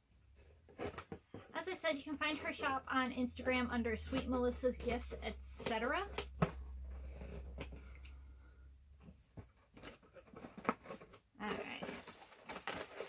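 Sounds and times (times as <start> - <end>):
cardboard box rustling: 0.4 - 2.8, 9.1 - 13.0
scissors snipping cardboard: 3.5 - 6.6.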